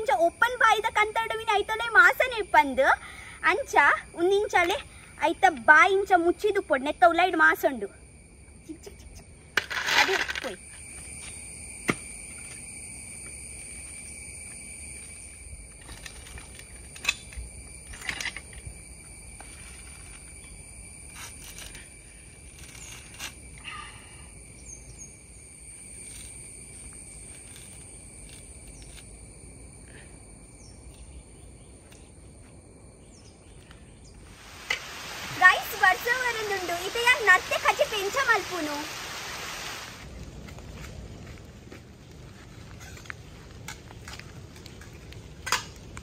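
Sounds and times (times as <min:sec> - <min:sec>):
high-pitched background drone: 0:00.0 - 0:40.2
coconut husk cracking: 0:26.0 - 0:29.1.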